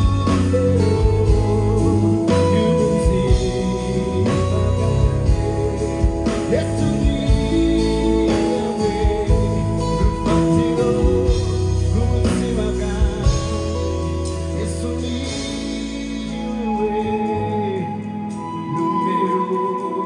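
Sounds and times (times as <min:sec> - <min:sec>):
gospel band playing: 0:00.0 - 0:20.0.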